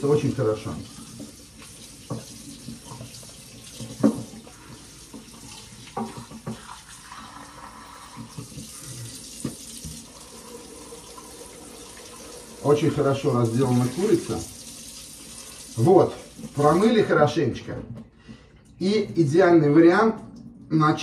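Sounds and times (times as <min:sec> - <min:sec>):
tap running into sink: 0:01.0 - 0:04.5, 0:05.1 - 0:06.9, 0:08.1 - 0:10.2.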